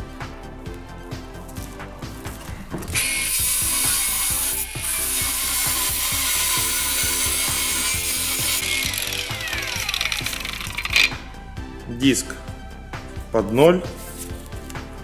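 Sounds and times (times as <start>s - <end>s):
angle grinder cutting steel: 2.8s - 11.4s.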